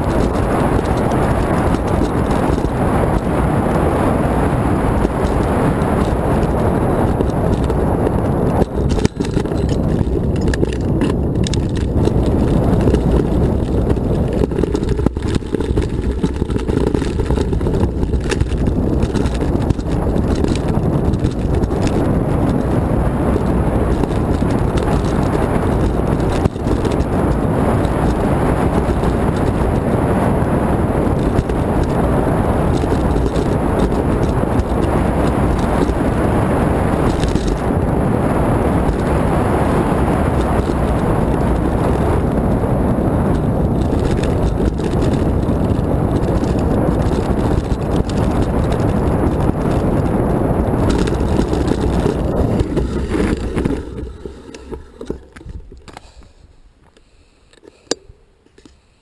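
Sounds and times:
wind buffeting microphone: 0.0 - 56.3
bike rumbling over loose stones: 0.0 - 56.4.

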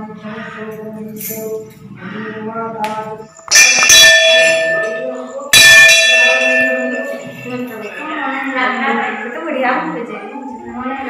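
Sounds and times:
brass bell ringing: 3.5 - 9.3.

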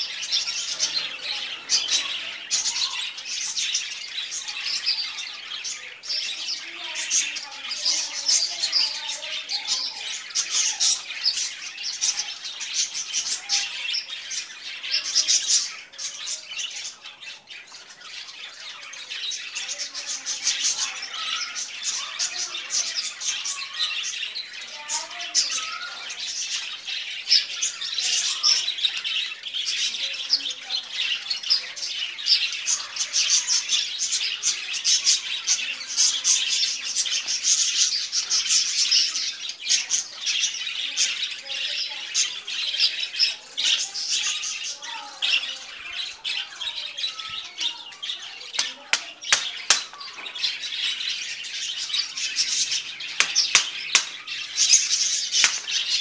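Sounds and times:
small birds chirping: 0.0 - 56.0
sharp clicks: 53.2 - 54.2.

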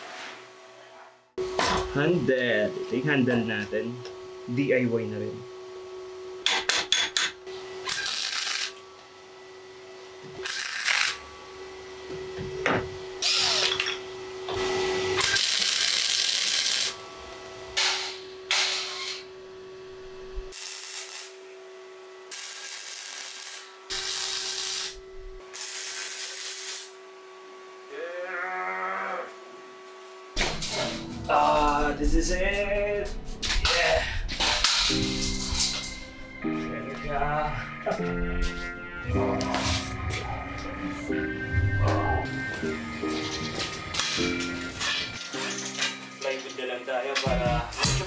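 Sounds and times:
welder arc noise bursts: 7.8 - 8.8, 10.4 - 11.3, 13.1 - 13.7, 14.5 - 19.3, 20.4 - 21.6, 22.2 - 27.1.

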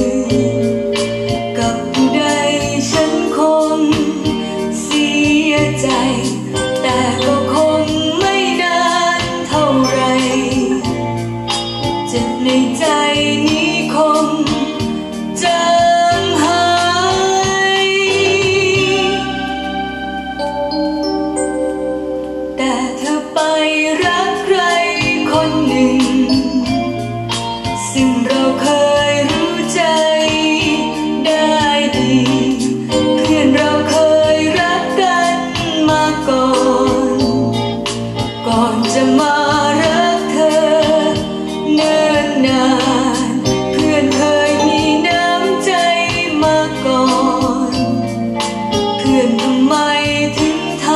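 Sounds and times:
person singing: 0.0 - 1.0, 1.6 - 11.1, 27.8 - 37.6, 38.4 - 48.0
song from vinyl record: 0.0 - 50.9.

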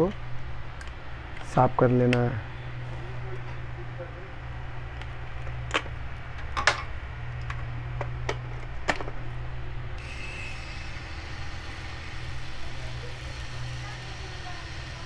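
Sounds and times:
small electric motor whining: 10.0 - 15.0.

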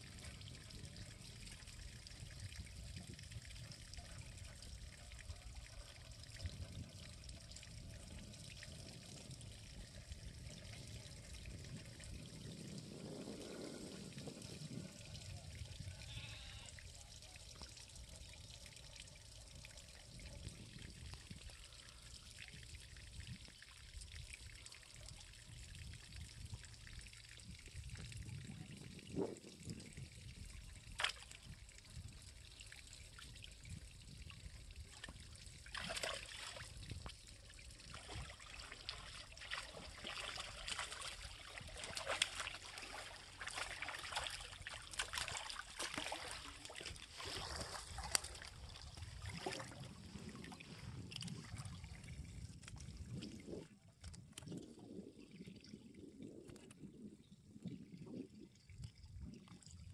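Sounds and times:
water trickling and splashing: 0.0 - 59.9
repeated water splashes: 30.3 - 54.6.

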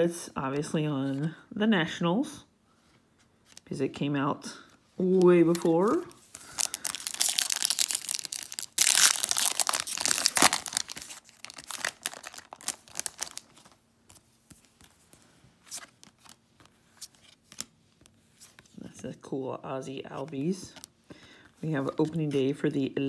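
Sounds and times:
cards rustling: 5.0 - 18.7
foil wrapper tearing and crinkling: 5.5 - 13.8.

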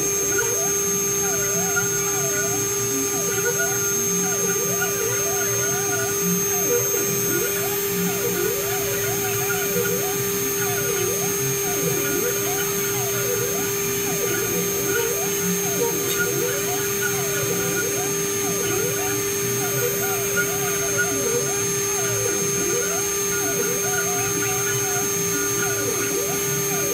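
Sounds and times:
axis motors whining: 0.0 - 26.9
milling spindle whine: 0.0 - 26.9.

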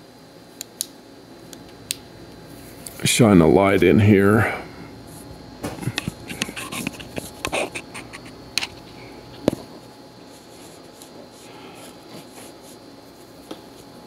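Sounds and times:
faint room hum: 0.0 - 14.0
small clicks and scrapes: 5.9 - 8.8.

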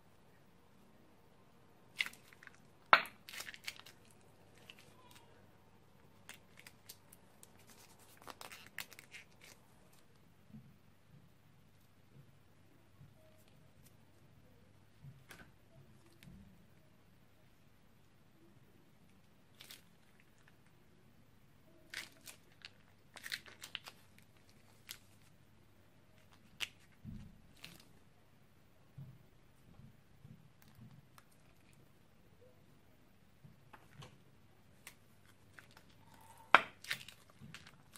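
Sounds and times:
plastic bag crinkling: 1.9 - 5.3, 6.2 - 10.0, 35.2 - 37.9.

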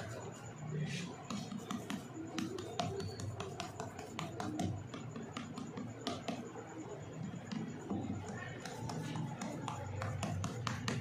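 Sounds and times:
faint background music: 0.0 - 11.0
spatula tapping metal tray: 1.3 - 6.5.

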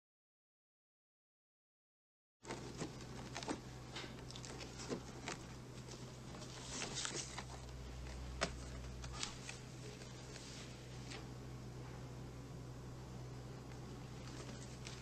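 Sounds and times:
record sleeves knocking and rustling: 2.4 - 11.2, 14.2 - 15.0
steady low hum: 2.4 - 15.0.

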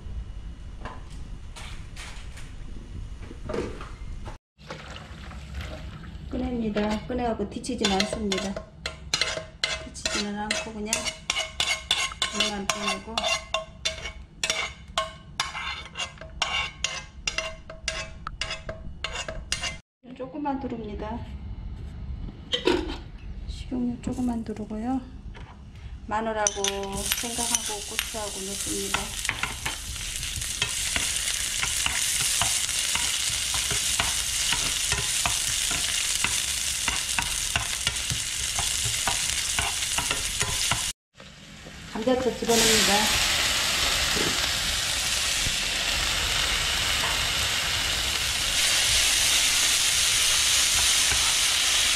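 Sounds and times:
spoon scraping against pan: 7.8 - 19.8, 26.4 - 29.8, 30.4 - 40.9
food sizzling in hot oil: 26.8 - 51.9.

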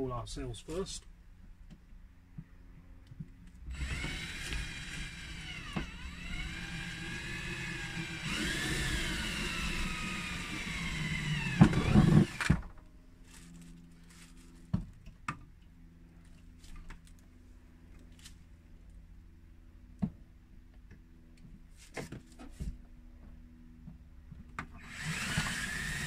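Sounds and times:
drill clicks: 3.7 - 12.6, 24.8 - 26.0
cordless drill whining: 3.7 - 12.7, 24.8 - 26.0.

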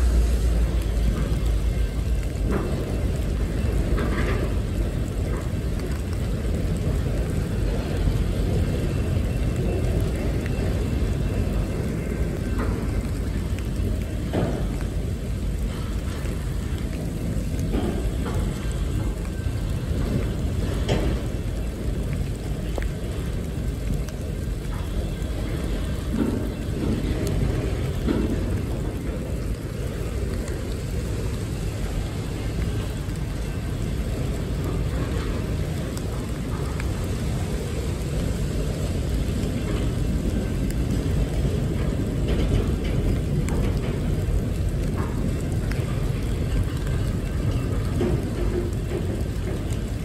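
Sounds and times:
freight train rolling past: 0.0 - 50.0.

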